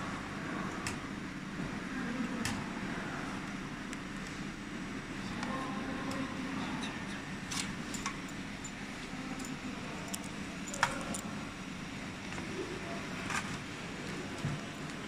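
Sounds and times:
steady low hum: 0:00.0 - 0:15.0
metal connectors clicking: 0:09.4 - 0:11.3.

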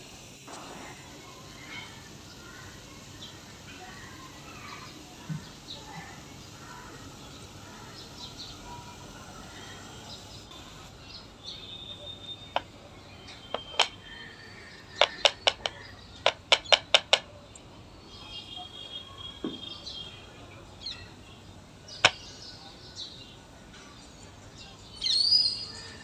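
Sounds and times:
faint background hiss: 0:00.0 - 0:16.2
sharp clicks: 0:13.5 - 0:14.0, 0:15.0 - 0:17.7.

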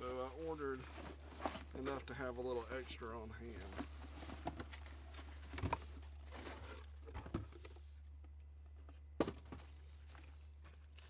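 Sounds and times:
paper and cardboard rustling: 0:00.0 - 0:08.0.

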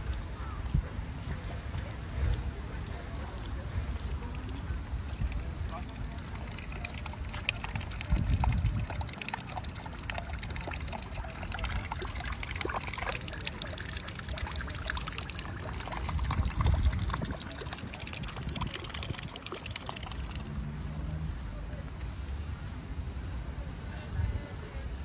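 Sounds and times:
rain falling and dripping: 0:04.0 - 0:20.6.

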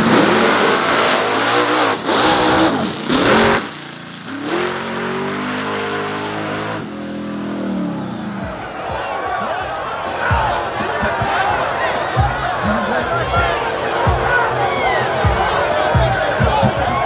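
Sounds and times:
drag racing engines at full throttle: 0:00.0 - 0:17.0.

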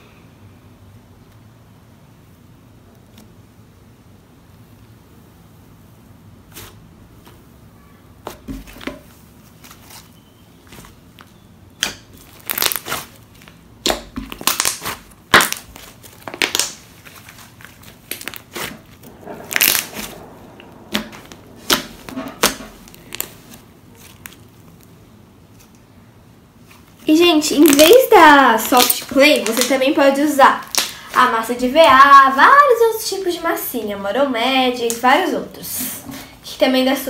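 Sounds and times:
slime squishing and popping: 0:11.7 - 0:24.9, 0:27.5 - 0:29.8, 0:30.6 - 0:31.1.

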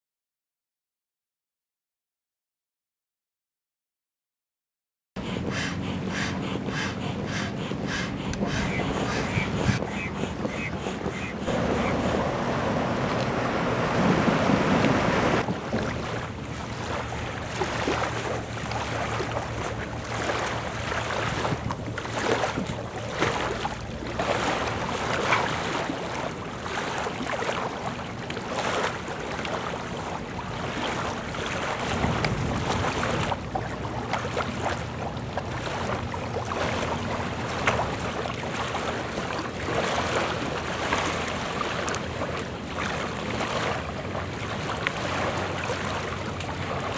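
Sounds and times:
wind gusting on microphone: 0:07.8 - 0:16.2, 0:31.8 - 0:33.4.

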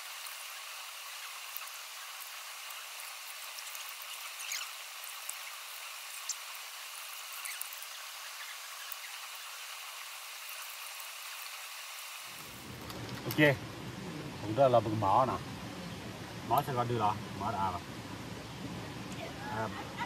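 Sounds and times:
stream running over stones: 0:00.0 - 0:13.6.

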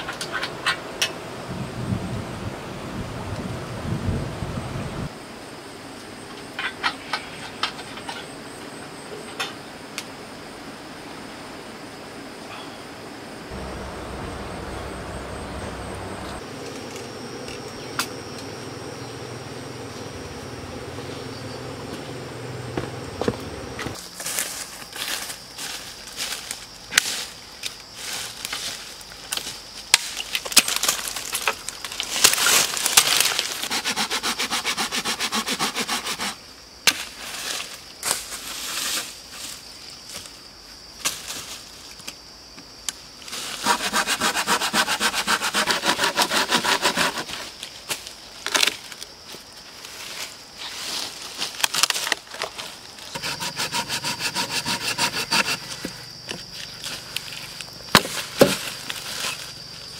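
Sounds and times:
dead leaves crunching: 0:22.8 - 0:33.7, 0:47.4 - 0:53.2, 0:55.6 - 0:59.9
hand saw cutting log: 0:33.4 - 0:36.4, 0:43.6 - 0:47.5, 0:53.1 - 0:55.9
dry twigs snapping: 0:51.4 - 0:52.7.

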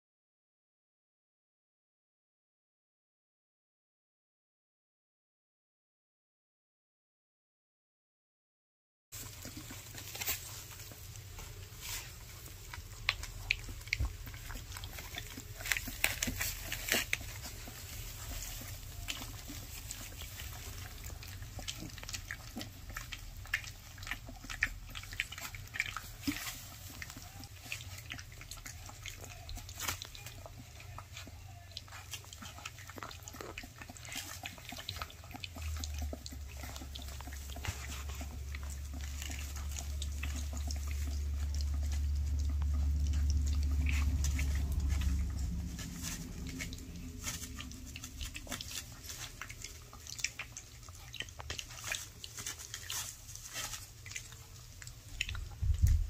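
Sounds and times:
puppies lapping and slurping: 0:09.2 - 0:56.0.

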